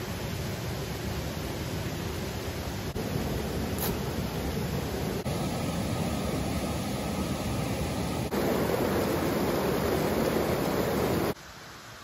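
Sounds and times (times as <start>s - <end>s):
kettle water rushing toward boil: 2.9s - 11.4s.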